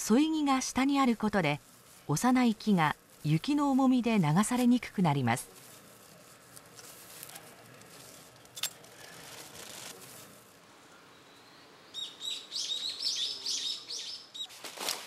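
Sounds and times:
faint rustling: 0:00.6 - 0:10.7
songbird singing high chirps: 0:10.9 - 0:14.5.

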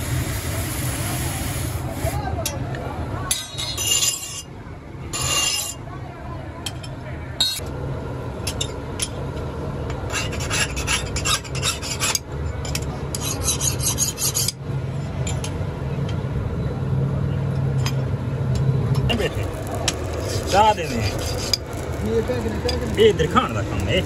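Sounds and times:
file rasping on steel: 0:10.1 - 0:12.2, 0:13.1 - 0:14.6, 0:19.5 - 0:21.9
low steady hum: 0:14.5 - 0:24.0.

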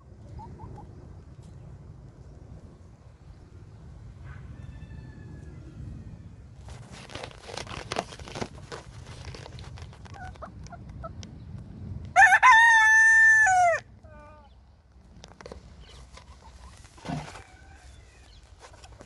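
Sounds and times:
rooster crowing: 0:04.5 - 0:06.3, 0:12.2 - 0:13.9, 0:17.2 - 0:18.3
rustles and clicks: 0:06.6 - 0:11.0, 0:15.1 - 0:19.0.

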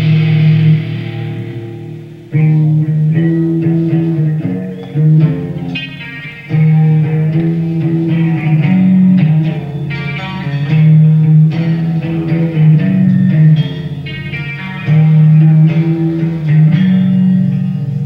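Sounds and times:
live rock band playing: 0:00.0 - 0:18.0.

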